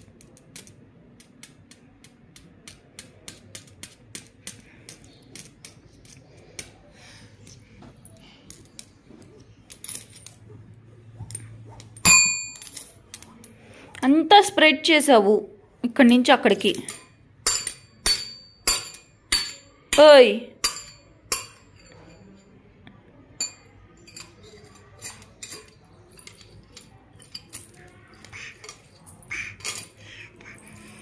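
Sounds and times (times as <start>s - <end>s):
coins clicking together: 0.0s - 10.5s, 11.3s - 13.6s, 23.4s - 31.0s
coin ringing ding: 12.0s - 12.8s.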